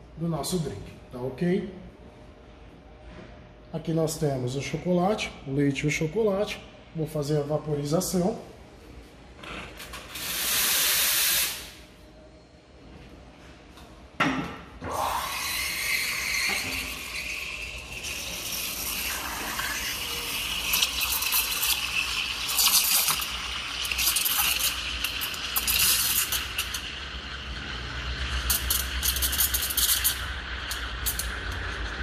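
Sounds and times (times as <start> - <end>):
steam sputtering in milk: 14.9 - 32.0.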